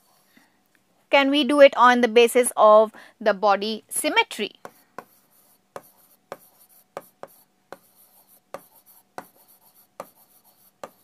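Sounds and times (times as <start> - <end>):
marker pen writing on whiteboard: 0.0 - 0.3, 4.6 - 11.0.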